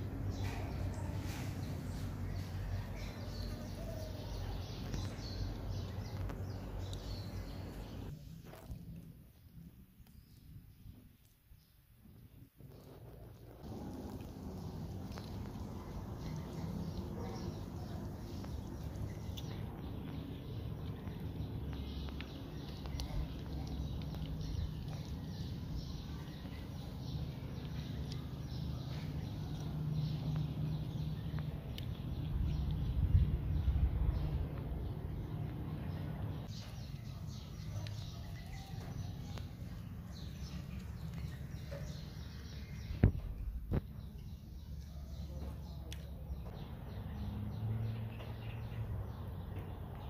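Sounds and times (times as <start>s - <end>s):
cats chewing food: 0.0s - 47.2s
low hum: 13.1s - 37.1s.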